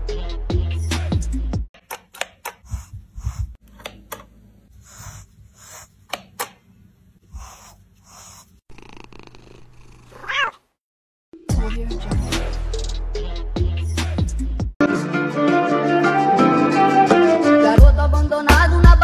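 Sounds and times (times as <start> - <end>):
brush strokes through fur: 7.3 - 8.6
cat purring: 8.7 - 10.5
cat meowing: 10.1 - 10.6.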